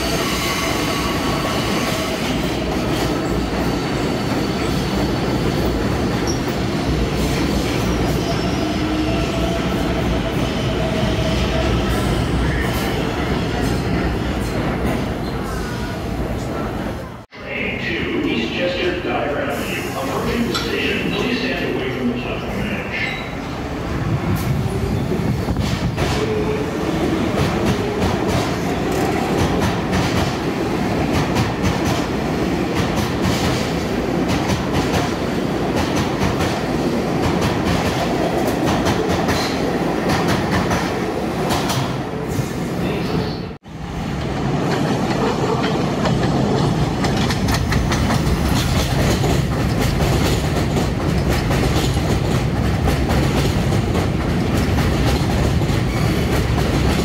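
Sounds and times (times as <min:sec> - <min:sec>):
subway train wheels clicking: 0:00.0 - 0:57.0
train rumble: 0:16.0 - 0:42.6.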